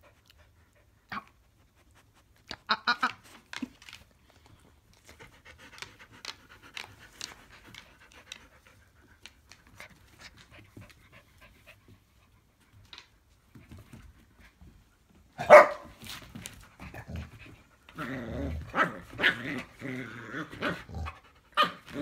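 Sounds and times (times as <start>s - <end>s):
dog panting: 0.0s - 2.6s, 3.6s - 15.3s
dog barking: 15.4s - 15.9s.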